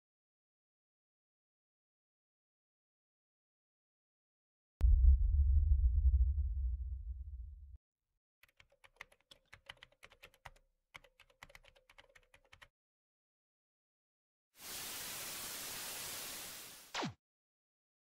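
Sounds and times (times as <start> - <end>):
deep low boom: 4.8 - 7.8
keyboard typing clicks: 8.4 - 12.7.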